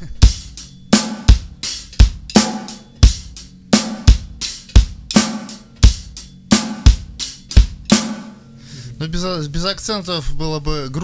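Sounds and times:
bass drum: 0.0 - 8.3
trashy open hi-hat: 0.0 - 10.1.

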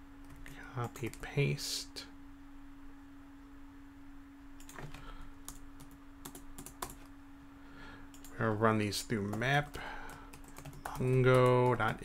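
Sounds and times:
faint steady hum: 0.0 - 12.0
computer keyboard typing: 4.6 - 7.1, 9.2 - 12.0.

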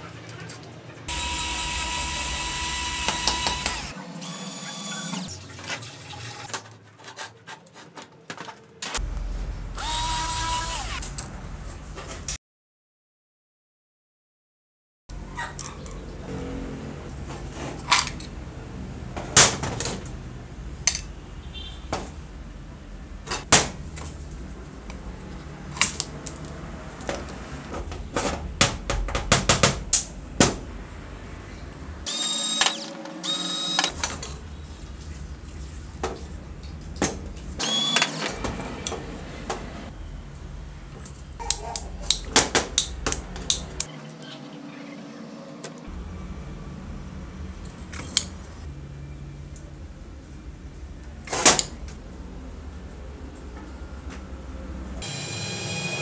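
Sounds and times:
harsh noisy bursts: 1.1 - 5.3, 9.0 - 11.2.

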